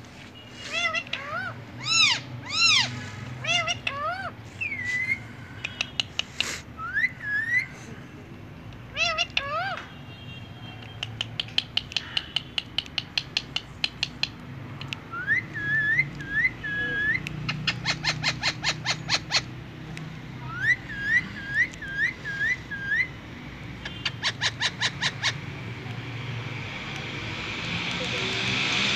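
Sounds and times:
parakeet chattering: 0:00.7 - 0:07.6, 0:08.9 - 0:09.8, 0:10.9 - 0:14.4, 0:15.2 - 0:19.6, 0:23.8 - 0:25.6
parakeet whistling: 0:15.1 - 0:19.5, 0:20.5 - 0:23.2.

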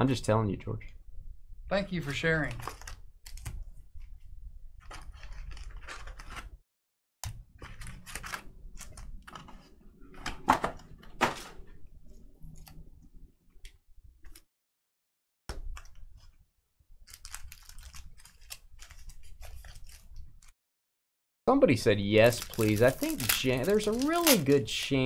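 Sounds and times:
card packs clicking and rustling: 0:04.8 - 0:06.6, 0:17.1 - 0:20.2, 0:22.2 - 0:25.0.

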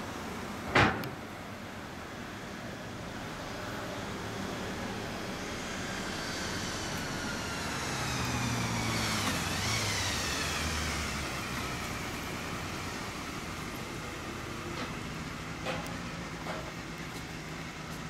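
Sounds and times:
vehicle passing by: 0:03.4 - 0:15.6.

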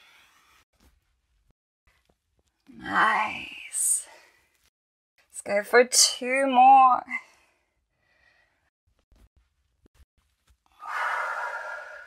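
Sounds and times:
woman breathing hard: 0:10.8 - 0:12.0.

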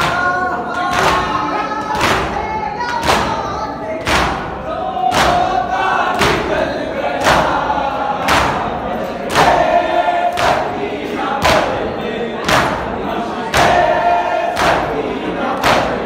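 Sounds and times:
hands beating chests: 0:04.0 - 0:05.6, 0:06.2 - 0:07.6
men chanting in chorus: 0:04.4 - 0:16.0.

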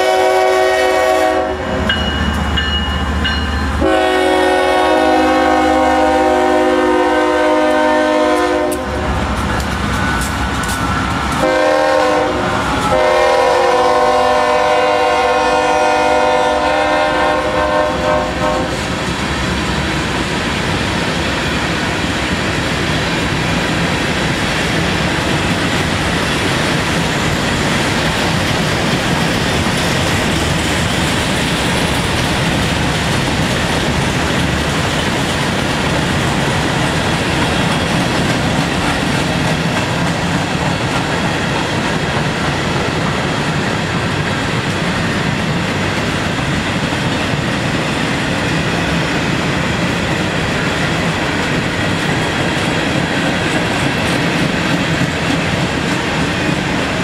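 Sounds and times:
locomotive air horn: 0:00.0 - 0:02.0, 0:03.8 - 0:09.2, 0:11.4 - 0:18.9
freight train wheels clacking: 0:00.0 - 0:57.0.

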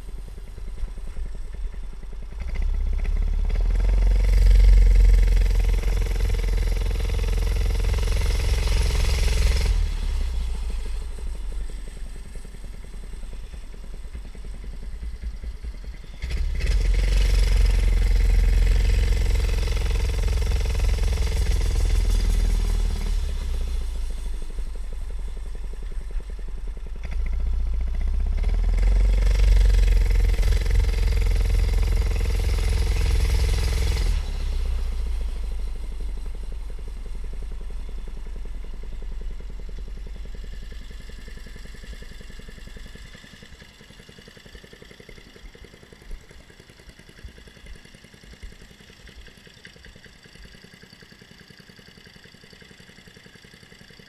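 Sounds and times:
mini bike engine running: 0:00.0 - 0:54.0.

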